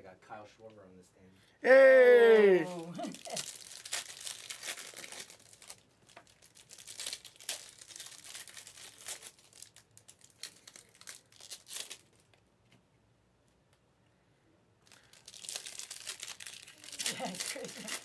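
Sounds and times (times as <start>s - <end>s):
card pack wrappers crinkling: 2.7s - 12.4s, 14.9s - 18.0s.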